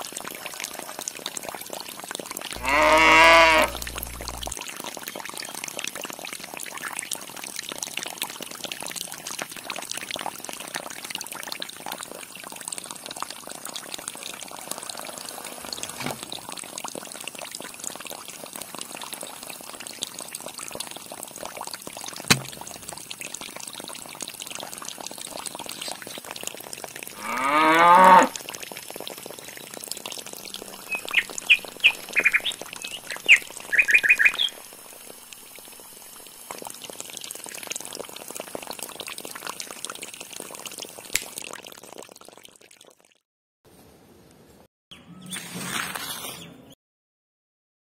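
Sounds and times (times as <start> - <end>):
water splashing into a pool: 0.0 - 43.2
loud rising call: 2.6 - 4.5.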